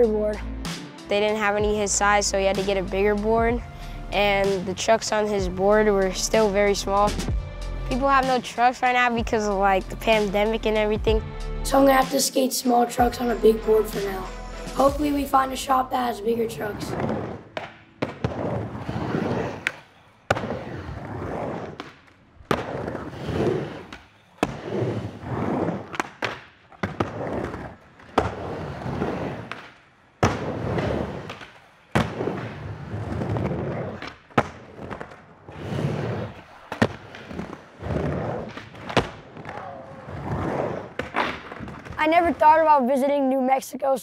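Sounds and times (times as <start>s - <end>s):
skateboard wheels rolling on ramp: 16.7s - 42.6s.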